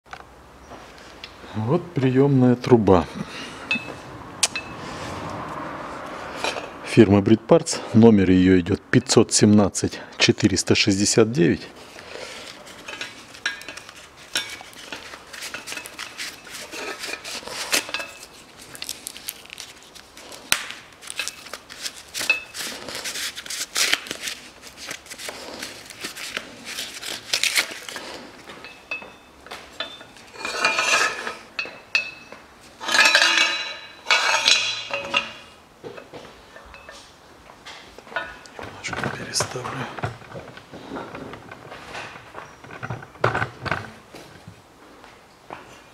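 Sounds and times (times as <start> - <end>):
exhaust pipe clinking against metal: 3.6 - 4.8, 28.5 - 37.2
metal scrapes: 11.8 - 18.5, 29.8 - 35.6.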